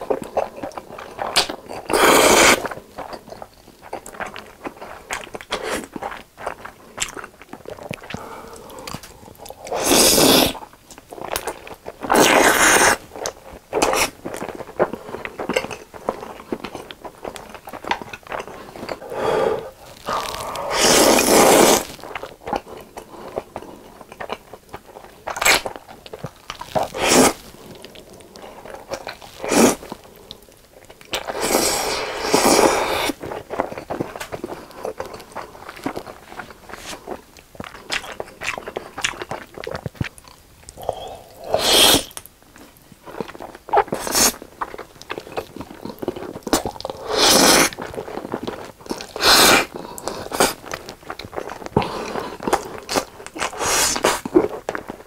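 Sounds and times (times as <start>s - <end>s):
wet chewing and crunching: 0.0s - 55.0s
noodle slurping: 1.3s - 2.8s, 7.9s - 10.7s, 12.0s - 13.0s, 19.0s - 22.2s, 26.5s - 27.8s, 28.5s - 30.0s, 31.2s - 33.4s, 40.7s - 42.2s, 46.9s - 48.3s, 48.9s - 50.7s, 51.4s - 54.5s.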